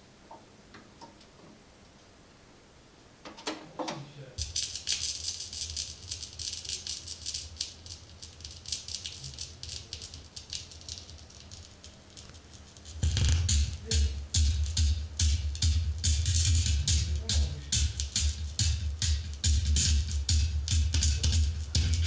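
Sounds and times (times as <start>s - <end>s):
stylus touching down on record: 3.9s - 22.0s
music: 4.4s - 22.0s
vinyl crackle and pops: 4.4s - 22.0s.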